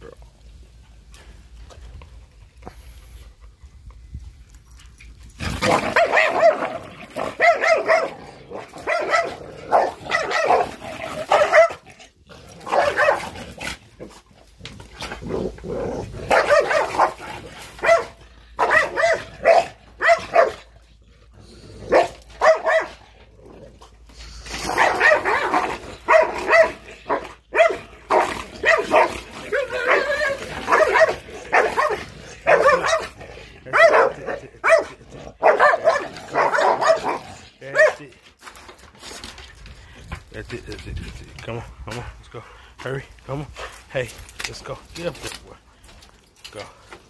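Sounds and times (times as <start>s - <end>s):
dogs barking: 5.6s - 11.8s, 12.6s - 14.0s, 16.2s - 20.8s, 21.8s - 23.0s, 24.6s - 38.1s.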